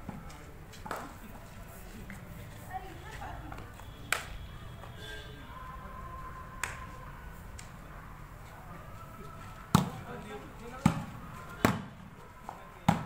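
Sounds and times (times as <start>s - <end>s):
volleyball slap: 9.7s - 10.1s, 10.8s - 11.9s.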